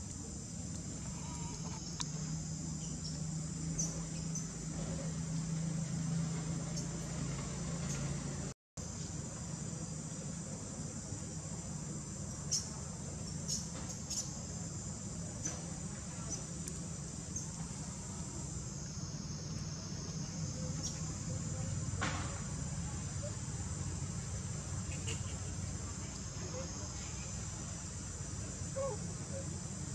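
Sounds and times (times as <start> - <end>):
high-pitched insect chorus: 0.0 - 29.9.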